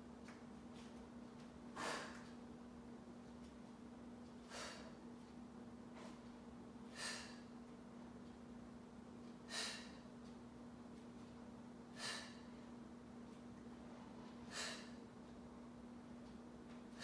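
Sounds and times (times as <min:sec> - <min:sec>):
faint steady hum: 0:00.0 - 0:17.0
woman's sharp breaths: 0:01.8 - 0:02.3, 0:04.4 - 0:05.0, 0:06.9 - 0:07.6, 0:09.4 - 0:10.1, 0:11.9 - 0:12.6, 0:14.4 - 0:15.0.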